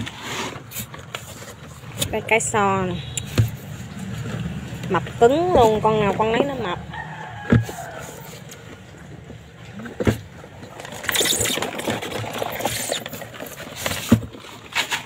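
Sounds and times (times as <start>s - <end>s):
crabs scratching and scraping: 0.0s - 15.0s
rooster crow: 6.8s - 8.5s.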